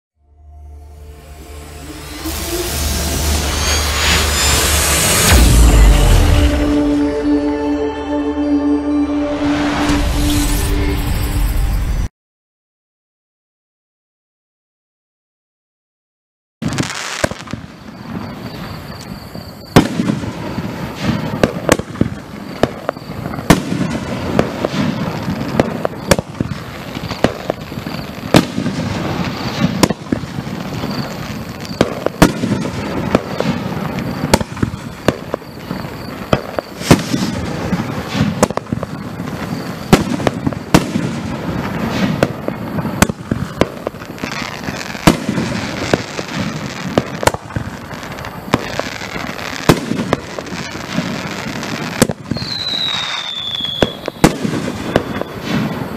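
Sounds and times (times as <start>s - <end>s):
fireworks bursting with sharp bangs: 1.2s - 7.2s, 16.6s - 55.9s.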